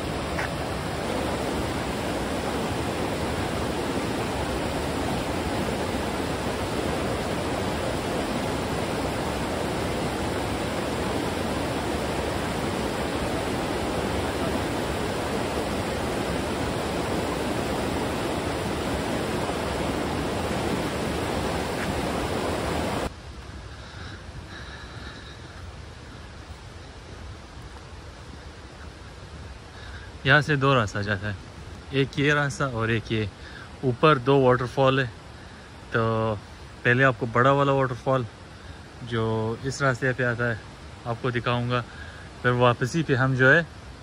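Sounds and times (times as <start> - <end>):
fast-flowing stream water: 0.0 - 23.1.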